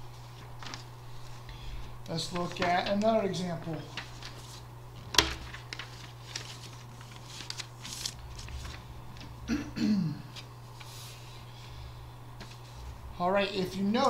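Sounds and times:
paper rustling: 0.0s - 9.5s, 12.4s - 14.0s
low electrical hum: 0.0s - 14.0s.

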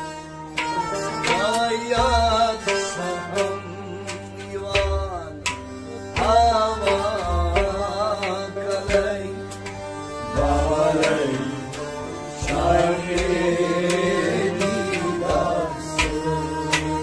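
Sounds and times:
harmonium chords: 0.0s - 17.0s
man singing: 6.2s - 9.5s.

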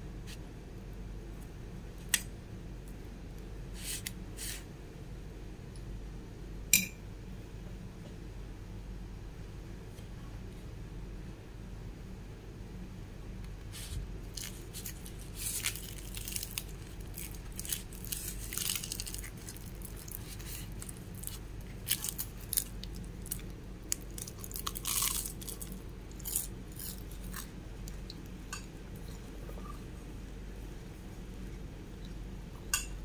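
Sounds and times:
low steady hum: 0.0s - 33.0s
flatbread tearing and crackling: 13.8s - 28.3s.

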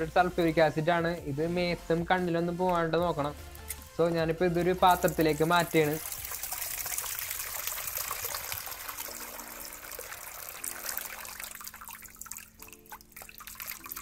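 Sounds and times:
liquid splashing into plastic bowl: 4.9s - 14.0s.

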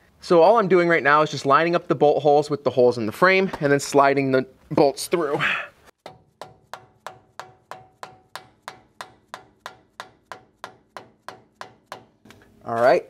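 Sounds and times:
hammer tapping on steel: 6.0s - 12.3s.

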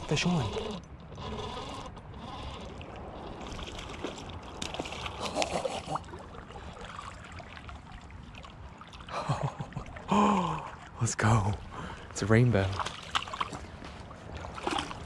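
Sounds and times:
fishing reel clicks and rubbing: 0.0s - 2.8s
creek water running: 0.0s - 15.0s
water splashing: 0.0s - 15.0s.

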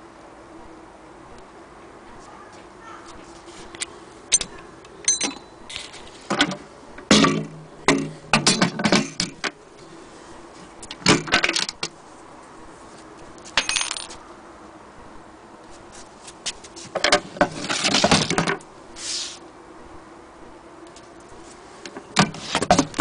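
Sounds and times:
metallic clinks and rattles: 4.3s - 6.0s
brief hiss: 19.0s - 19.4s.

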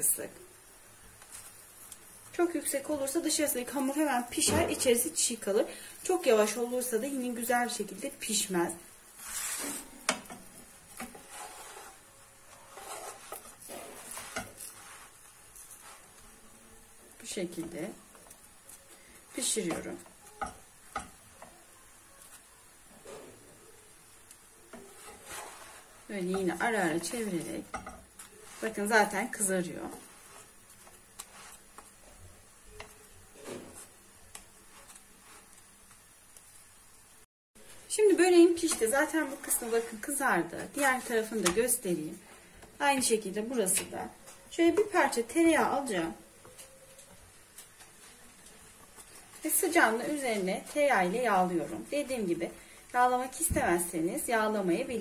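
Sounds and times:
spatula scraping frying pan: 9.1s - 16.3s, 24.7s - 32.0s, 38.5s - 41.8s
spatula clicking on frying pan: 20.4s - 21.2s.

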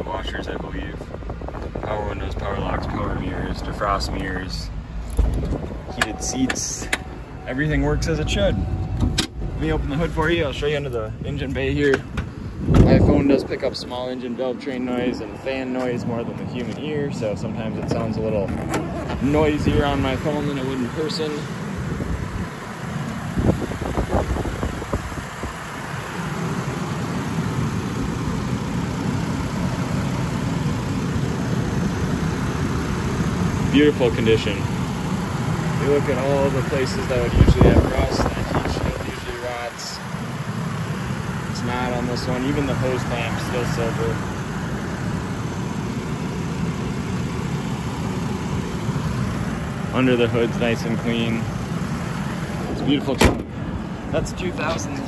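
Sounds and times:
car engine idling: 0.0s - 55.0s
cooling fan noise: 0.0s - 55.0s.

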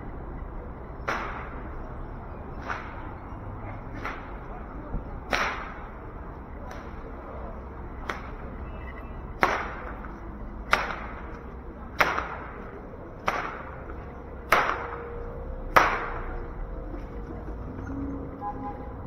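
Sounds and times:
whip cracking with echo: 1.0s - 1.7s, 2.6s - 3.2s, 3.9s - 4.5s, 5.3s - 5.9s, 8.0s - 8.4s, 9.4s - 10.0s, 10.7s - 11.4s, 12.0s - 12.6s, 13.2s - 13.9s, 14.5s - 15.0s, 15.7s - 16.3s.

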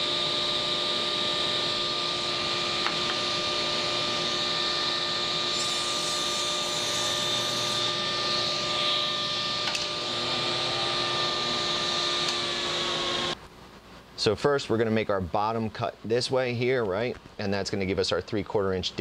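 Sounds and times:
table saw whining: 0.0s - 13.4s
saw motor winding down: 0.1s - 13.4s.

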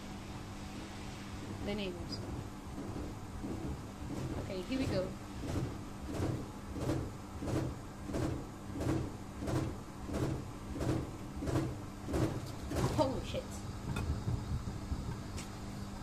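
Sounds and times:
motor hum: 0.0s - 16.0s
washing machine drum thumping: 2.2s - 13.2s, 13.8s - 15.5s.

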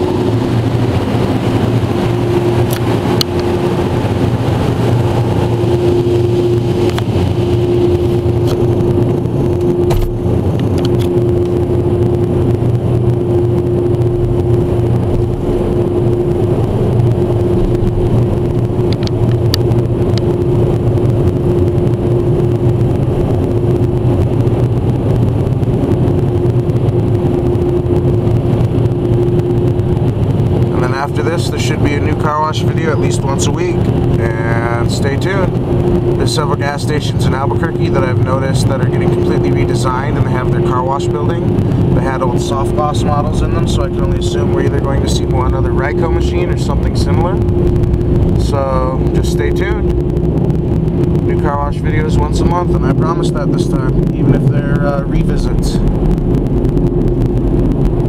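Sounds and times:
car wash dryer blowers: 0.0s - 58.0s.

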